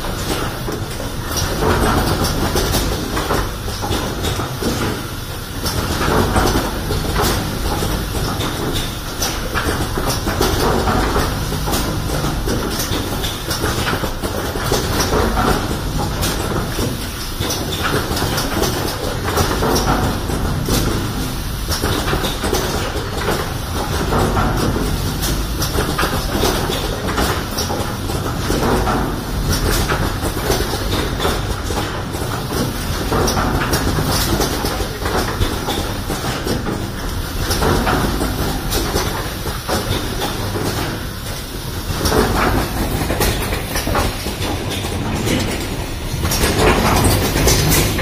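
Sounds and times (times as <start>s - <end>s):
machine clattering clicks: 0.0s - 48.0s.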